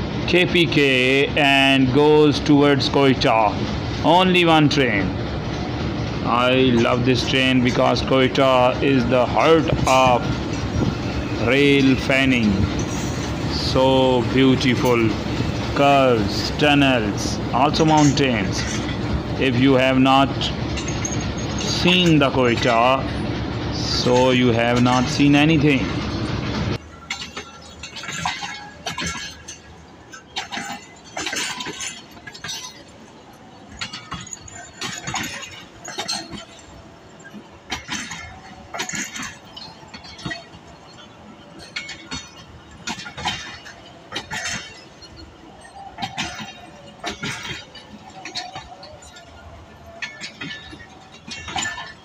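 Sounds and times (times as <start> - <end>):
train wheels clanking over rail joints: 0.0 - 52.0
metallic clinks from couplings: 20.4 - 23.0, 26.9 - 52.0.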